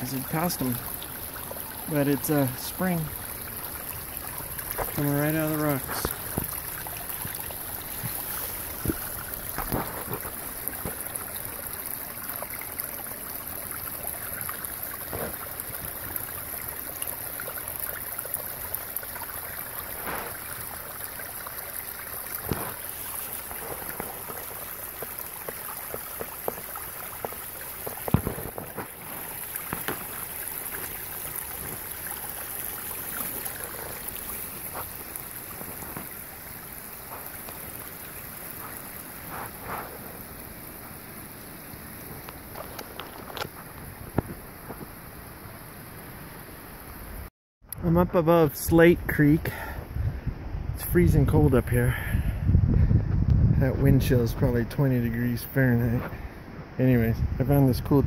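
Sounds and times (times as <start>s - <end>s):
spring water trickling and splashing: 0.0s - 52.5s, 54.0s - 58.0s
knocks and rustles: 27.2s - 30.1s.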